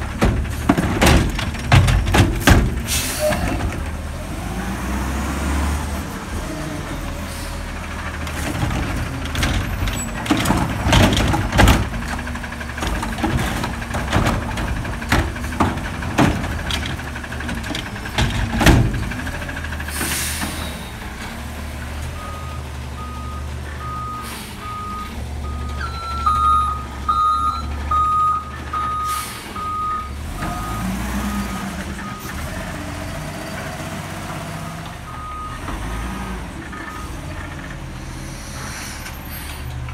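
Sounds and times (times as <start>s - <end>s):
bangs and clatters of recyclables: 0.0s - 4.1s, 8.1s - 21.2s
diesel engine running: 0.0s - 39.9s
reversing beeper: 22.2s - 32.4s.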